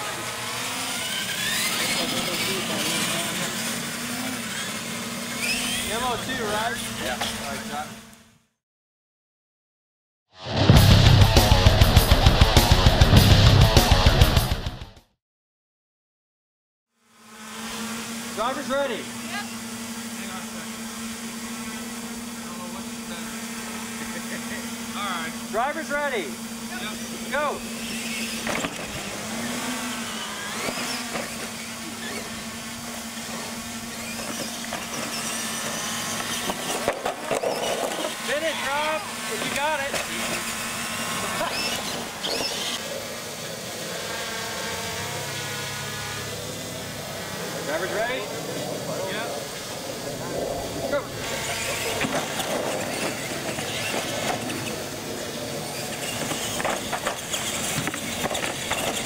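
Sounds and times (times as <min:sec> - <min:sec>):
electric toy truck motors whining: 0:00.0 - 0:08.5, 0:17.0 - 0:59.0
steady low hum: 0:17.5 - 0:59.0
tyre noise on concrete: 0:34.1 - 0:38.5, 0:56.0 - 0:59.0.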